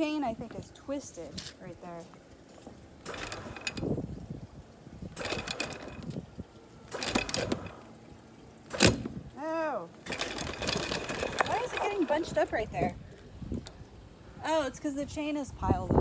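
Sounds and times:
electric windlass running: 2.8s - 14.2s
anchor chain rattling: 3.0s - 4.4s, 5.1s - 7.9s, 8.6s - 9.3s, 10.0s - 12.6s
sharp clunk: 8.7s - 9.2s.

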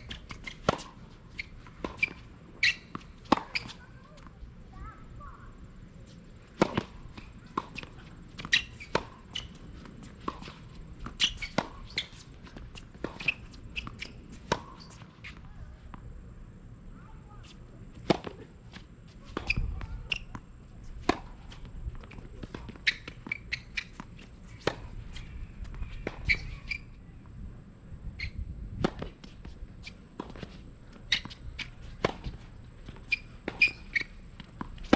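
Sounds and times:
rackets striking tennis ball: 28.8s - 34.9s.

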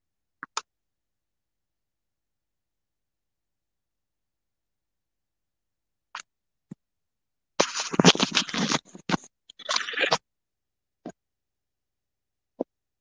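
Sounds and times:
scratching on a microphone: 7.6s - 10.2s.

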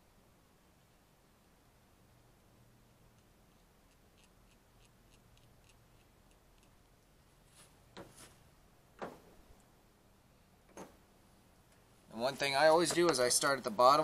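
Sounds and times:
faint ticking of bolt threads: 2.3s - 7.2s.

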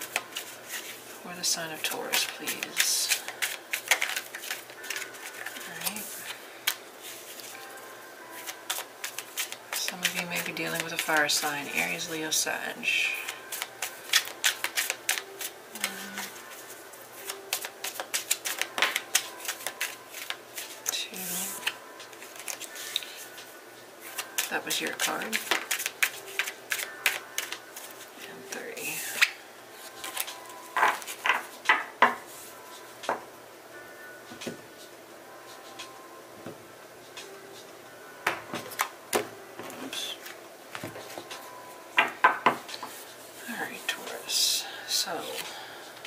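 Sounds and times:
cards being shuffled: 0.0s - 1.1s, 1.8s - 7.6s, 8.4s - 12.2s, 13.2s - 31.7s.

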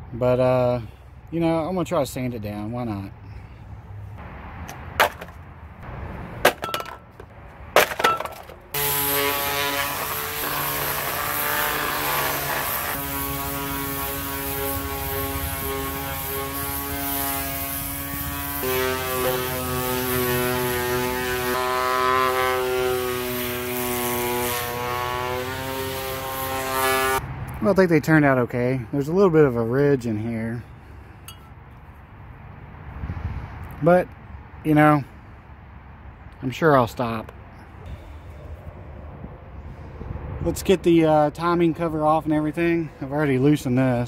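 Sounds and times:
electric sander sanding metal: 8.7s - 27.2s.

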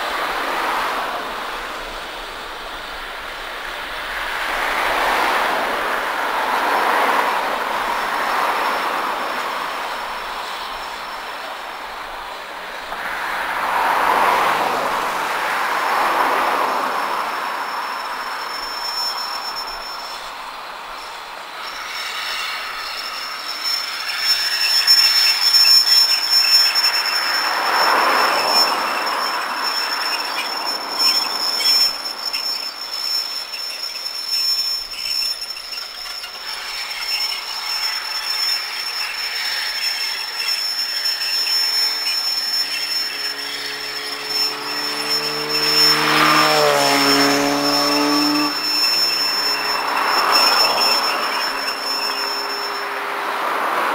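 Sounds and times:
steady high-pitched whine: 0.0s - 53.9s
train wheels rumbling on rails: 0.0s - 53.9s.

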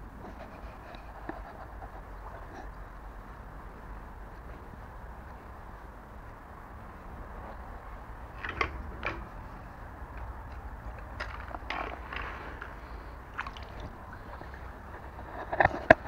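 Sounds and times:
water lapping and splashing: 11.0s - 16.0s.

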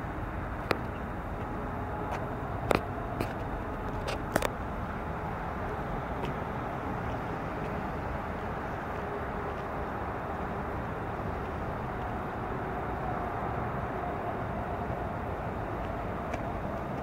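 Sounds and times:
low engine rumble: 0.0s - 17.0s.

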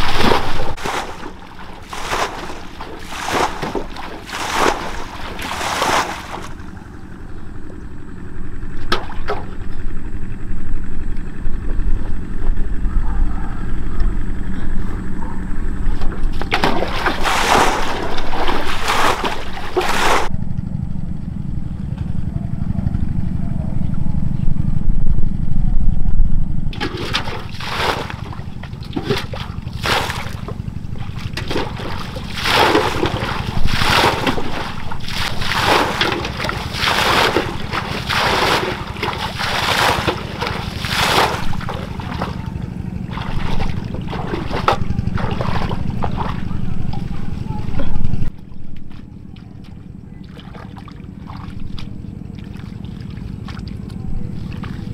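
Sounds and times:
water splashing and sloshing: 0.0s - 7.8s, 8.5s - 10.4s, 14.8s - 20.3s, 26.7s - 54.9s
low rumble: 0.0s - 54.9s.

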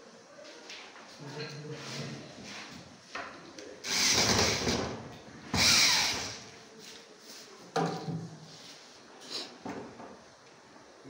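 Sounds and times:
cordless drill driving screws: 3.8s - 4.9s, 5.6s - 6.4s.

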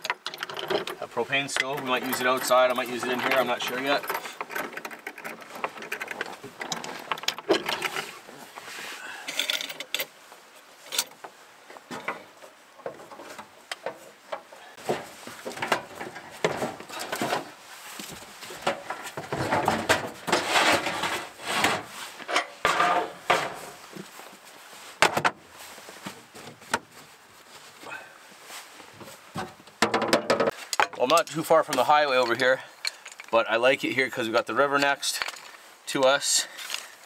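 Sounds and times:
rustling and scraping: 0.0s - 37.0s
knocks and clatters in cabinets: 14.8s - 17.6s, 18.6s - 23.8s, 25.0s - 25.4s, 29.4s - 30.6s.

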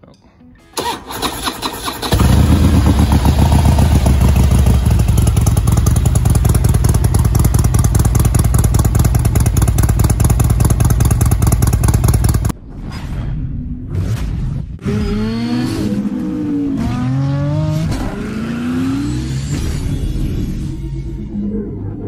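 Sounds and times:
motorcycle engine idling: 0.8s - 12.5s.

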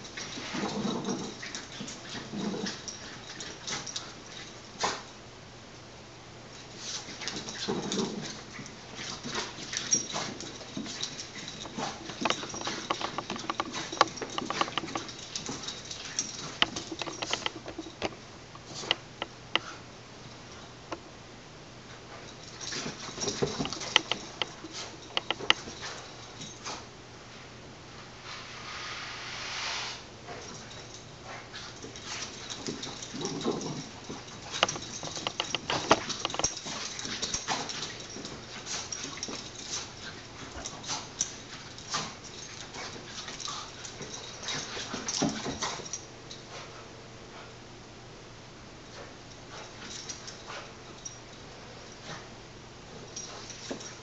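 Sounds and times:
dog paws pattering on carpet: 21.9s - 27.4s, 30.3s - 47.5s.

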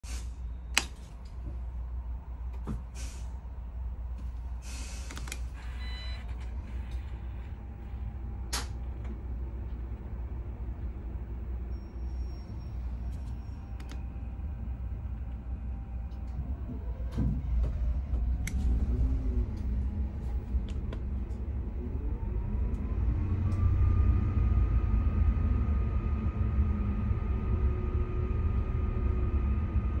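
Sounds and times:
bus diesel engine idling: 0.1s - 22.4s
compressed air hisses: 4.6s - 5.1s
brief electronic tone: 5.6s - 6.9s.

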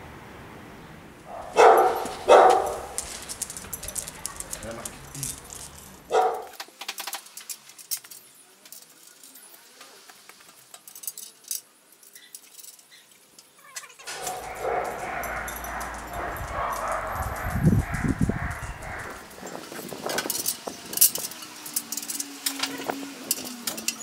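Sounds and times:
metallic clicks and rattles: 1.8s - 8.9s, 14.0s - 19.4s
low rumble: 14.3s - 19.3s.

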